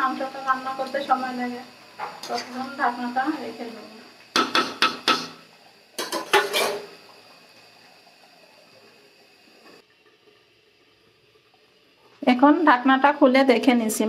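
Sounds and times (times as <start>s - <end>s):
spoon knocking against pan: 4.3s - 5.4s
metal lid clattering on pan: 6.0s - 6.8s.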